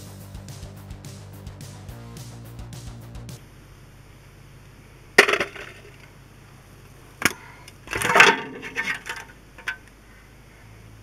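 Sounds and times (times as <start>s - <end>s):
metal clanks and clatter: 7.2s - 9.9s.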